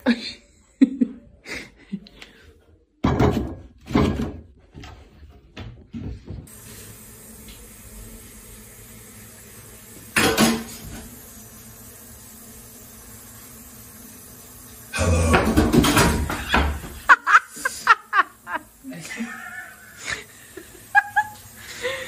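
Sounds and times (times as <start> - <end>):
knocks and clatters in cupboard: 3.0 - 4.9.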